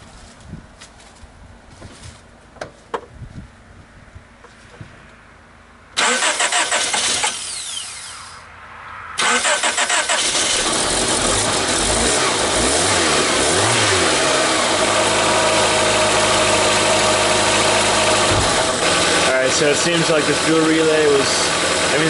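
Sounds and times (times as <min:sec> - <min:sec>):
starter motor cranking: 0:06.0 - 0:08.2, 0:09.2 - 0:11.8
car engine revving and idling: 0:09.2 - 0:22.0.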